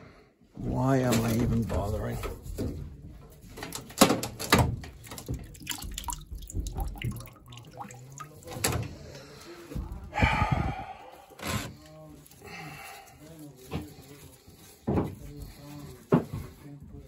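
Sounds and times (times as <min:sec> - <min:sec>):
water dripping: 0:04.9 - 0:08.9.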